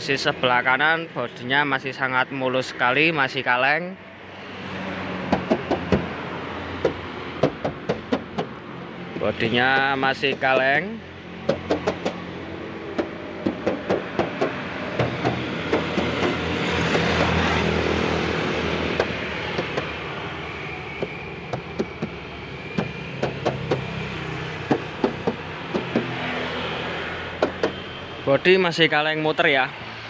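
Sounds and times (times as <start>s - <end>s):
vehicle rumble: 4.1s - 29.0s
fingers tapping on metal panels: 5.3s - 6.1s, 6.8s - 8.6s, 9.7s - 10.7s, 11.4s - 12.3s, 12.9s - 17.8s, 18.8s - 20.0s, 21.0s - 24.0s, 24.6s - 26.3s, 27.4s - 27.8s.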